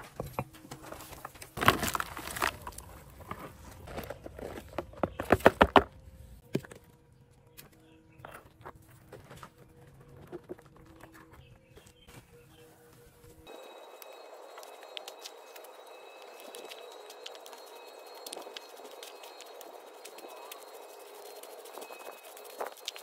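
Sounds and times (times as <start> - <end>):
cement powder rustling and pouring: 0.9 - 5.0, 14.5 - 23.0.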